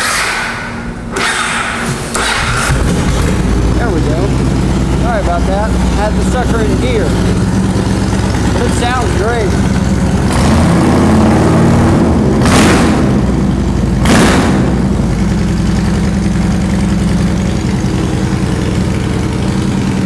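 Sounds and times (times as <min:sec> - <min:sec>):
motorcycle engine idling: 0:02.2 - 0:10.9, 0:14.8 - 0:20.0.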